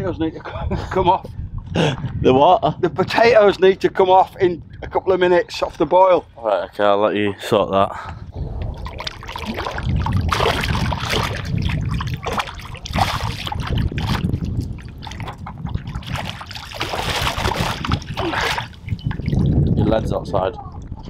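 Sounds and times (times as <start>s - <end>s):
low rumble: 8.2s - 16.4s
fish splashing in water: 8.7s - 19.6s.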